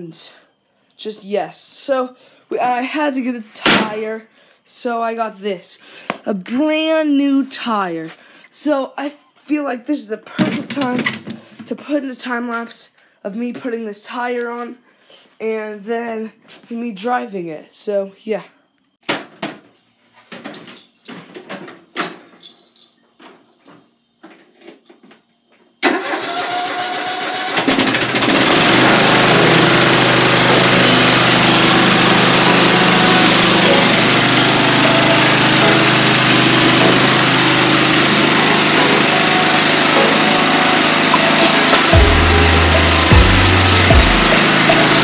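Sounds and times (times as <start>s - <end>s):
lawn mower engine running: 25.8s - 45.0s.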